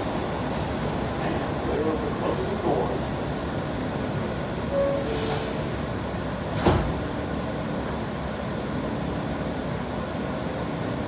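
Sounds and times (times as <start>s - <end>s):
subway car hum: 0.0s - 11.0s
sliding doors thud: 6.5s - 7.1s.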